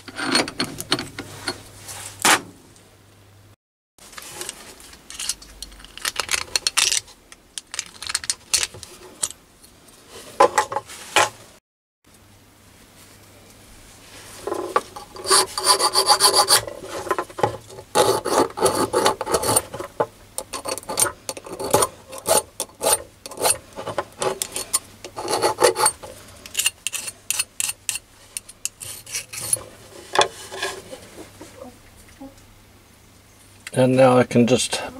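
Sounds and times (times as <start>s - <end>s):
hand file scraping brass: 14.7s - 17.2s, 17.8s - 31.2s.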